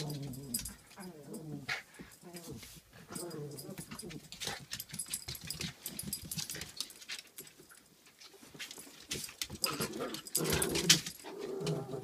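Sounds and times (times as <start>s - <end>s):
dogs scuffling: 0.0s - 12.0s
dog growling: 9.7s - 12.0s.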